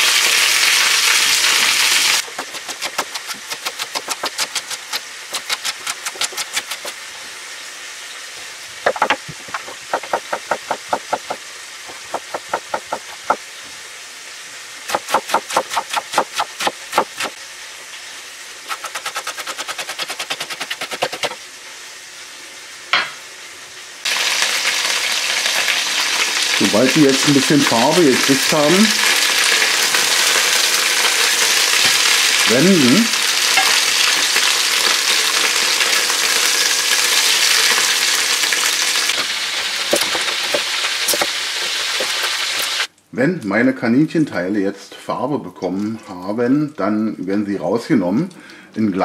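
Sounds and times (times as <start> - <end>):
meat sizzling in hot fat: 0.0 - 42.9
knife chopping on wooden board: 2.3 - 6.9, 8.9 - 13.4, 14.9 - 17.4, 18.7 - 21.4, 39.9 - 41.3.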